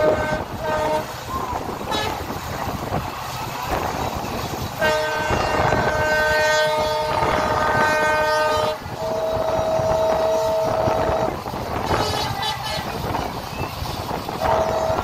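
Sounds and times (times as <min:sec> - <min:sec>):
locomotive horn blast: 0:00.0 - 0:02.5, 0:04.7 - 0:13.4, 0:14.3 - 0:15.0
train wheels rumbling on track: 0:00.0 - 0:15.0.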